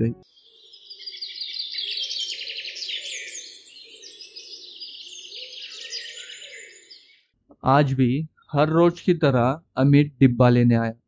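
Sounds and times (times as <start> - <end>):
small birds chirping: 0.0 - 7.4.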